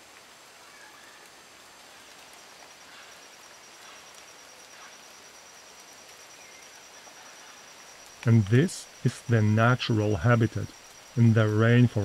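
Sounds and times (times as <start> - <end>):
rapidly pulsing insect call: 0.0 - 12.0
steady hiss: 0.0 - 12.0.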